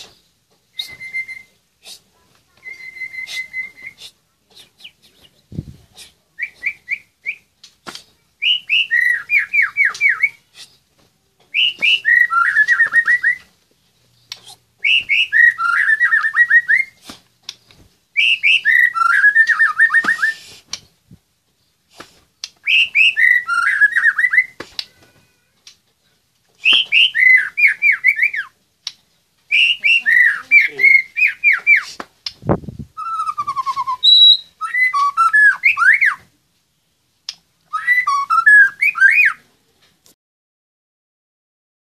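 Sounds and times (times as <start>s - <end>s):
songbird whistling and trilling: 0.0s - 1.6s, 2.6s - 4.1s, 6.4s - 7.5s, 8.4s - 10.6s, 11.5s - 13.5s, 14.4s - 17.0s, 18.2s - 20.6s, 22.6s - 24.6s, 26.6s - 28.6s, 29.5s - 32.0s, 33.0s - 36.3s, 37.7s - 39.4s.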